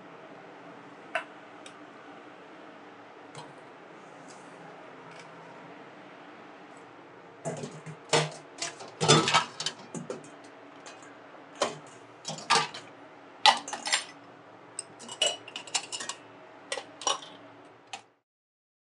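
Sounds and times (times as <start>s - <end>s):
steady low hum: 0.0s - 18.2s
dishes and utensils clattering: 7.5s - 11.0s, 11.6s - 12.9s, 13.5s - 14.2s, 14.8s - 17.4s.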